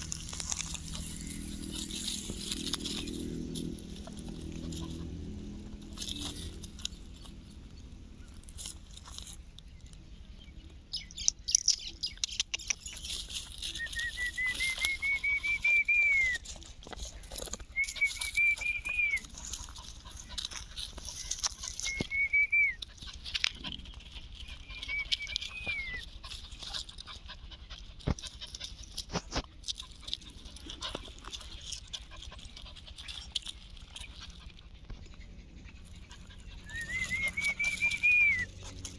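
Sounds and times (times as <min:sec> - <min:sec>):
rustling on dry ground: 0:00.0 - 0:38.9
small dog whining: 0:24.4 - 0:26.6, 0:35.0 - 0:38.9.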